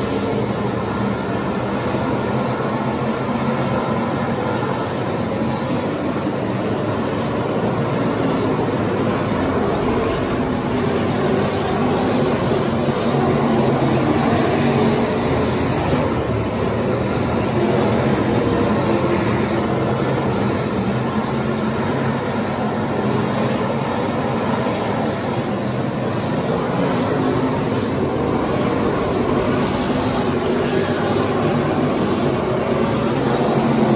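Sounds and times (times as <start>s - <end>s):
race car engines droning: 0.0s - 33.9s.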